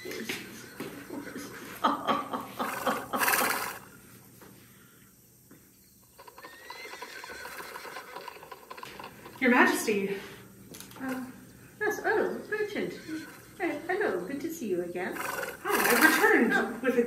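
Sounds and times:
horse neighing: 0.0s - 1.8s, 2.4s - 4.0s, 6.2s - 9.4s, 11.0s - 14.4s, 15.1s - 16.7s.

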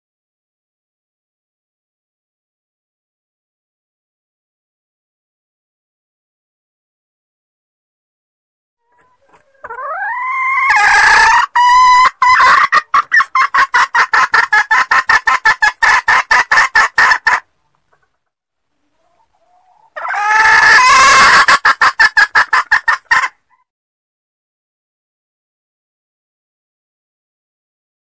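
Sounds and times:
hen squawking and clucking: 8.8s - 18.1s, 18.8s - 23.7s.

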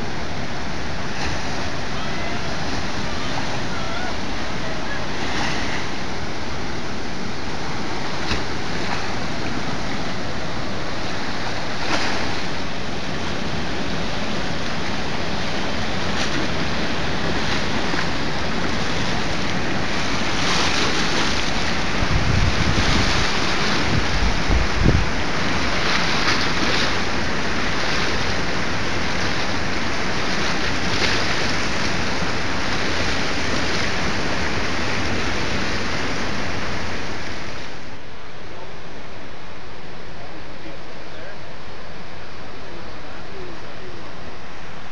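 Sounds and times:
white water rushing: 0.0s - 44.9s
wind buffeting microphone: 15.2s - 34.4s.

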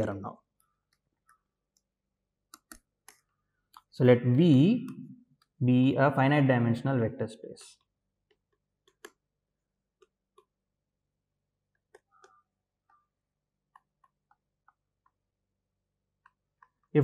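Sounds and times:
stylus tapping on tablet screen: 0.8s - 3.4s, 8.2s - 9.3s, 9.9s - 10.6s, 11.7s - 15.3s.

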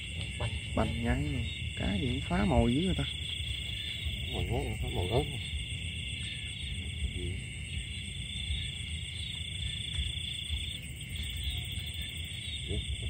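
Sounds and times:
night insects chirring: 0.0s - 13.0s.

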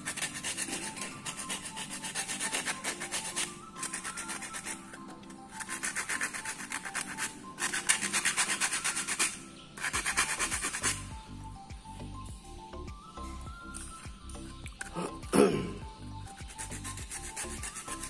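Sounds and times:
sandpaper rubbing an edge: 0.0s - 11.1s, 16.3s - 18.0s
background music: 0.0s - 18.0s.

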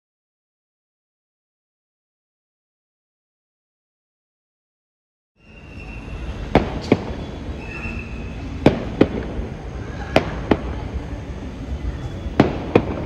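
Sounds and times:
sharp bangs in pairs: 6.5s - 7.2s, 12.3s - 13.0s.

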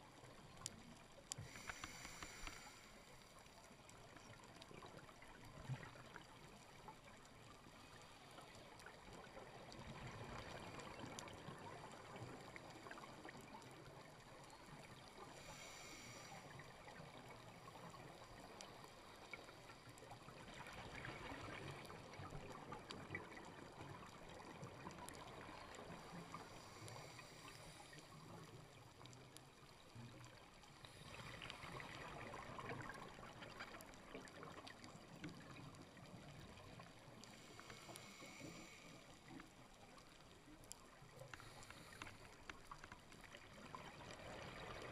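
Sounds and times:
underwater exhaled bubbles: 0.0s - 44.9s
small clicks: 0.5s - 3.5s.

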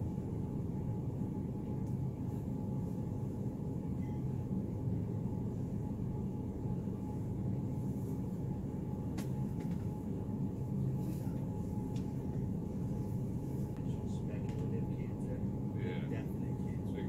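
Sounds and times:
faint steady hum: 0.0s - 17.0s
store background rumble: 0.0s - 17.0s.

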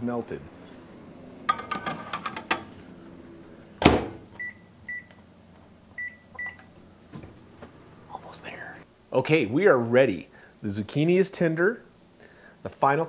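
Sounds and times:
tray clattering into oven: 1.5s - 2.8s
oven door thud: 3.8s - 4.3s.

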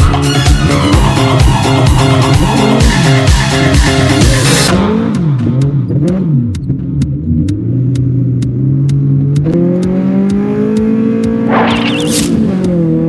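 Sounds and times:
car engine revving: 4.0s - 13.0s.

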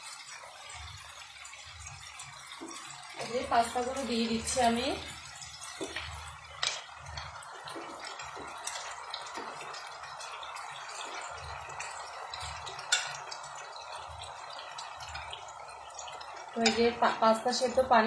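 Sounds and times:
wet pasta dripping and plopping: 0.0s - 18.0s
spoon knocking pan: 5.5s - 17.9s.

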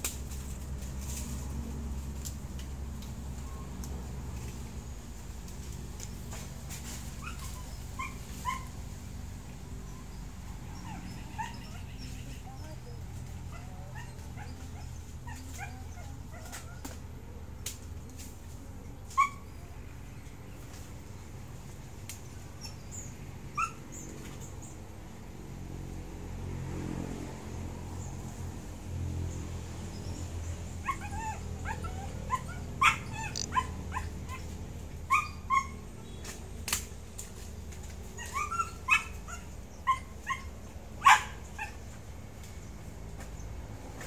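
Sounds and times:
dog whimpering yips: 7.2s - 8.8s, 10.7s - 12.0s, 19.2s - 19.5s, 23.6s - 23.8s, 30.8s - 34.4s, 35.1s - 35.9s, 38.2s - 41.7s.

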